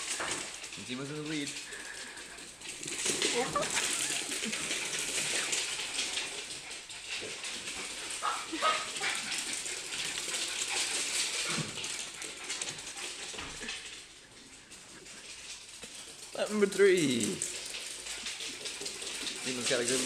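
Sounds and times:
dog claws clicking on floor: 0.0s - 20.0s
dog whining: 3.3s - 4.7s.

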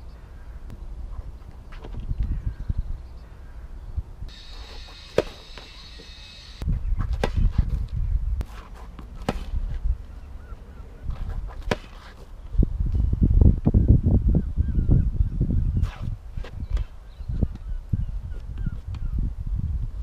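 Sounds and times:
wind buffeting microphone: 0.6s - 4.5s, 6.6s - 8.5s, 9.1s - 11.7s, 12.4s - 20.0s
tennis ball pops: 5.0s - 5.7s.

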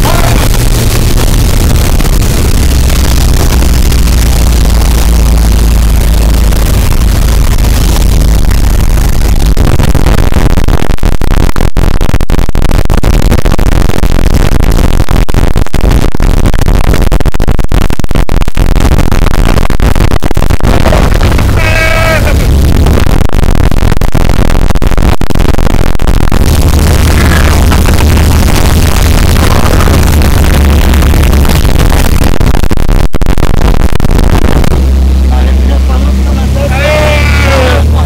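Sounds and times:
person yelling: 0.0s - 0.5s, 21.5s - 22.5s, 36.5s - 38.0s.

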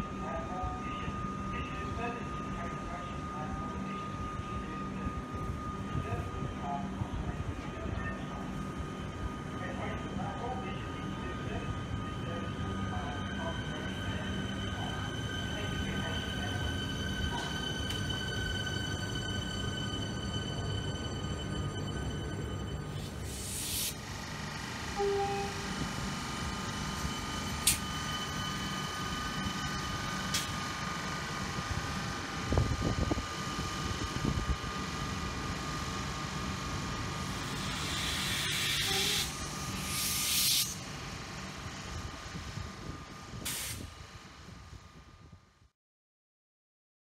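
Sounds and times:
electric train whine and rumble: 0.0s - 45.7s
air hissing: 22.9s - 24.0s, 37.4s - 40.8s, 43.5s - 43.9s.

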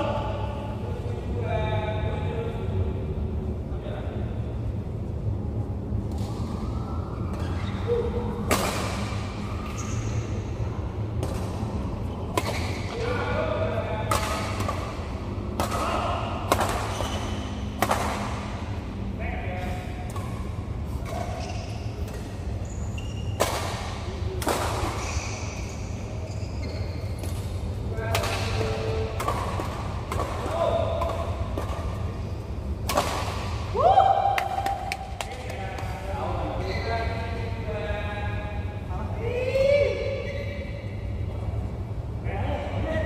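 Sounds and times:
rackets striking shuttlecock: 11.1s - 11.7s, 12.3s - 13.0s, 14.1s - 18.6s, 28.1s - 32.1s, 32.8s - 33.7s.

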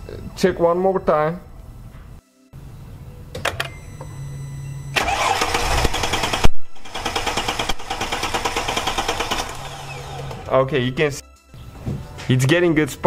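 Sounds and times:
car engine cranking on starter: 4.9s - 10.6s.

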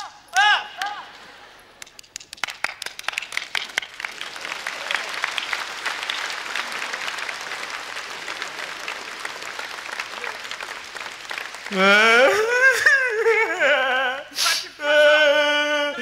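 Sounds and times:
audience applause: 1.8s - 13.3s.

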